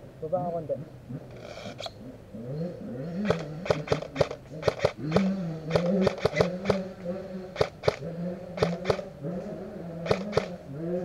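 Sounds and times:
motorcycle engine droning: 0.0s - 11.0s
airsoft gun shots: 3.2s - 6.8s, 7.6s - 8.0s, 8.6s - 9.0s, 10.1s - 10.5s.

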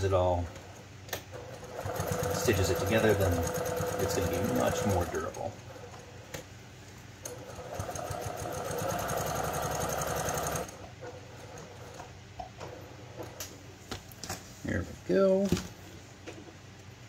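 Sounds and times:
sewing machine stitching: 1.4s - 5.5s, 7.3s - 10.8s.

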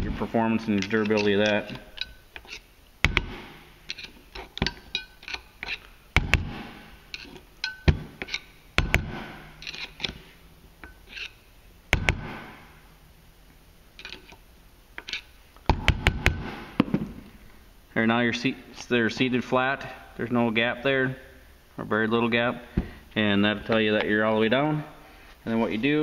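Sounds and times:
screwdriver clinking on metal: 0.8s - 2.6s, 3.9s - 5.9s.

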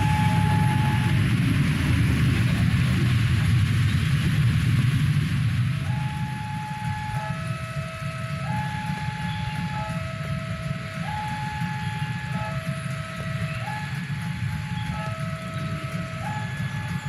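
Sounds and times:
two-tone warning signal: 0.0s - 1.3s, 5.8s - 17.0s
low rumble of train machinery: 0.0s - 17.0s.

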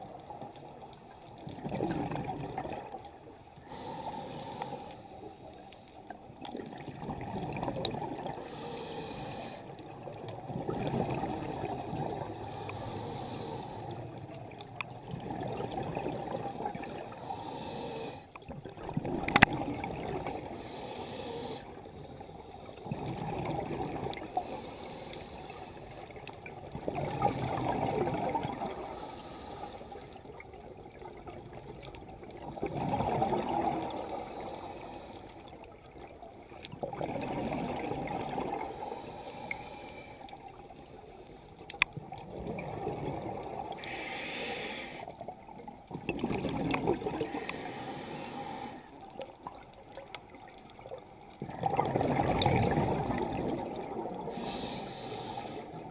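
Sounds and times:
exhaled bubbles rushing: 1.4s - 3.0s, 6.4s - 8.4s, 10.2s - 12.5s, 14.8s - 17.2s, 18.5s - 20.5s, 22.8s - 24.3s, 26.6s - 28.8s, 31.0s - 34.2s, 36.7s - 38.8s, 42.0s - 43.8s, 45.7s - 47.5s, 50.3s - 54.4s
underwater regulator breathing: 3.6s - 6.2s, 8.2s - 9.9s, 10.8s - 14.4s, 16.9s - 18.4s, 20.2s - 22.6s, 24.1s - 26.0s, 28.6s - 30.3s, 33.8s - 35.6s, 37.2s - 40.4s, 43.7s - 45.3s, 46.2s - 49.6s, 54.2s - 55.9s.

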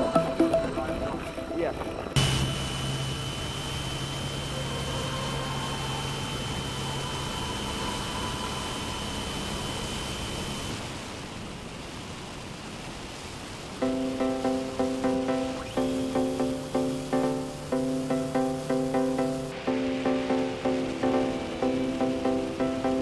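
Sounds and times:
electric motor whine: 2.2s - 11.3s, 13.8s - 23.0s.

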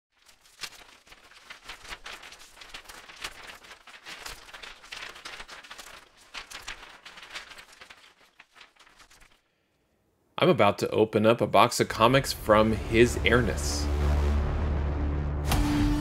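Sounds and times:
irregular rustling and crackling: 0.1s - 9.5s.

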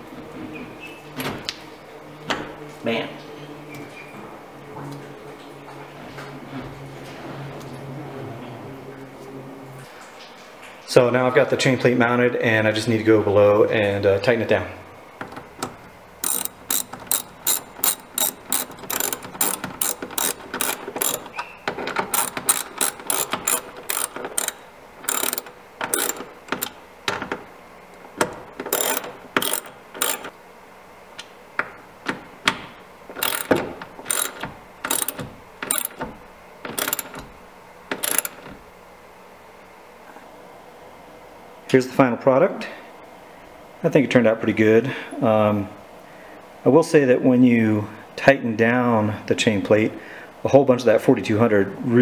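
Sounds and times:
ratchet wrench clicking: 16.2s - 26.8s, 28.6s - 30.3s, 33.2s - 36.1s, 36.7s - 37.2s, 37.9s - 38.4s.

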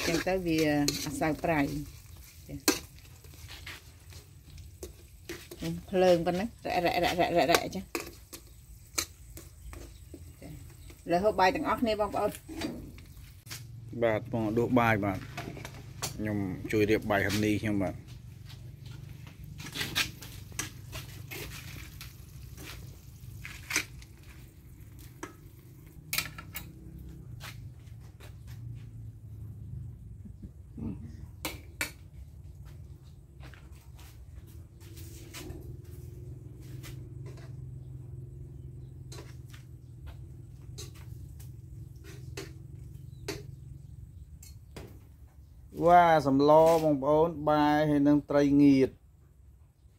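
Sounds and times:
metal spoon scraping a steel pot: 0.0s - 13.2s, 19.6s - 25.4s, 41.8s - 43.7s.

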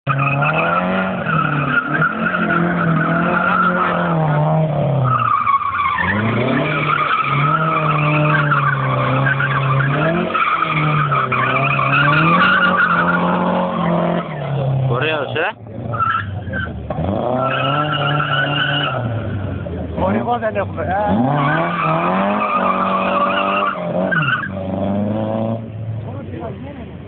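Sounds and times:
car engine revving hard: 0.2s - 5.0s, 6.0s - 25.8s
tyres squealing: 4.9s - 24.6s.

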